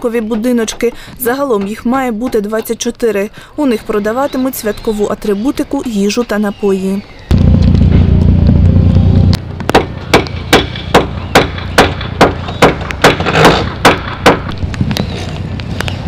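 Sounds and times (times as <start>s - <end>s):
loud low mechanical drone: 7.3s - 13.1s
hammer striking wood: 9.6s - 14.6s.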